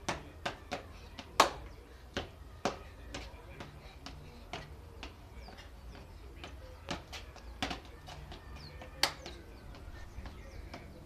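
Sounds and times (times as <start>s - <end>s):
shoes tapping on brick paving: 0.0s - 11.0s
hand clap: 1.4s - 1.6s, 9.0s - 9.3s.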